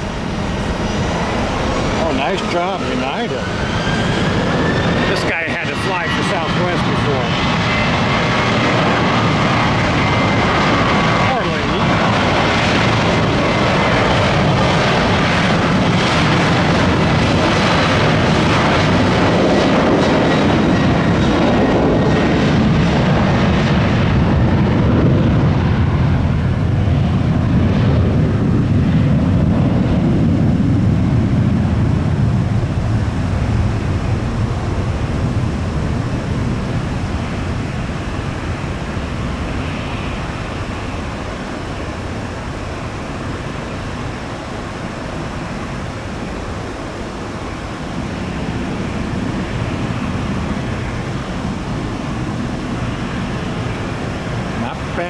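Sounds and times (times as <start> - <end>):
jet engines at takeoff: 0.0 - 55.0.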